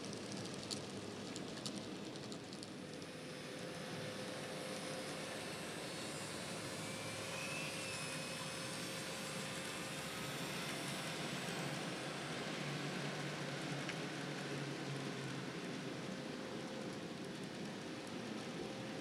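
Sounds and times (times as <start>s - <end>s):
model train motors whirring: 0.0s - 12.8s.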